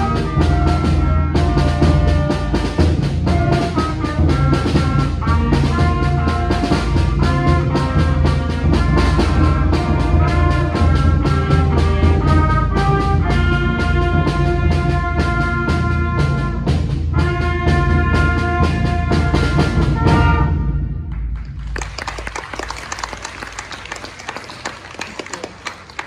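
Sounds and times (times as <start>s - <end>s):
drum beat: 0.0s - 20.5s
wind instruments holding notes: 0.0s - 21.0s.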